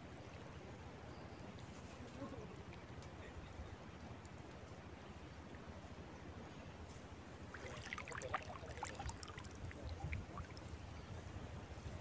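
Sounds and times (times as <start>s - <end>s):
water splashing and trickling: 7.1s - 12.0s
wind rumble on microphone: 9.0s - 12.0s.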